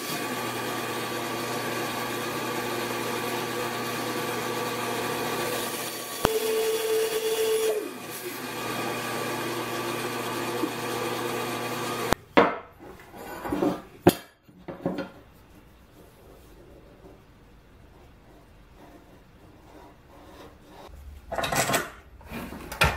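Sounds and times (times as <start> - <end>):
band saw cutting wood: 0.0 - 12.2
band saw running: 0.0 - 12.2.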